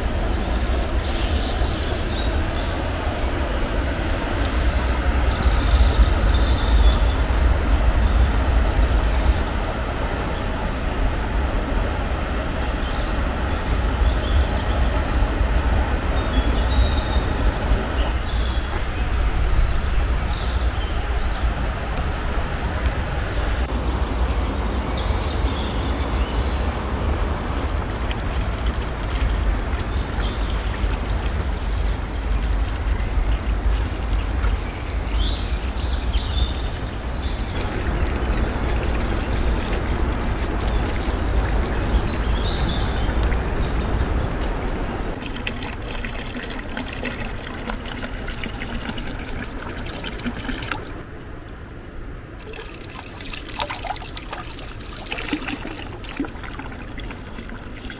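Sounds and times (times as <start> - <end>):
water pouring into plastic cup: 27.7 - 44.0, 45.2 - 51.3, 52.4 - 57.9
flowing water rushing: 27.7 - 57.9.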